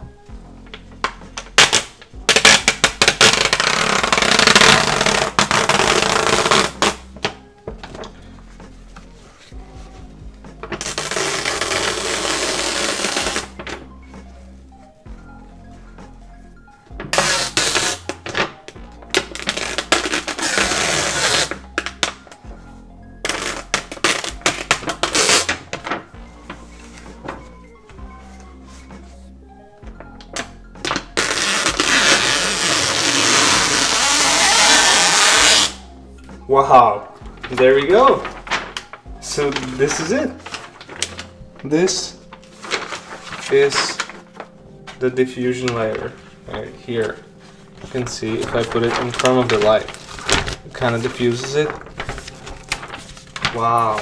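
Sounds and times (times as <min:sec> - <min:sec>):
quiet background music: 0:00.0 - 0:54.0
plastic film crackling: 0:00.7 - 0:14.8, 0:16.9 - 0:22.4, 0:23.2 - 0:27.6, 0:30.0 - 0:35.8, 0:37.4 - 0:54.0
wet paper crackling: 0:16.9 - 0:22.4, 0:37.4 - 0:54.0.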